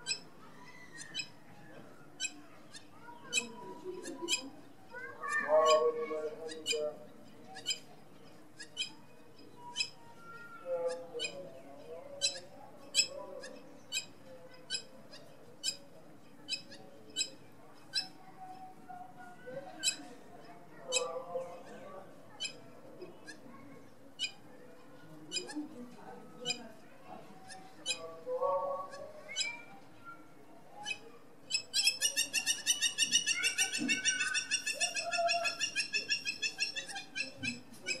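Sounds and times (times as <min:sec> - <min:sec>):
bird calling high-pitched notes: 0:30.8 - 0:38.0.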